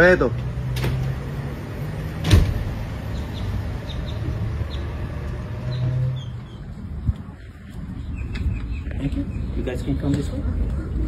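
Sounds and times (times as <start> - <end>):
glass door shutting: 2.2 - 2.7.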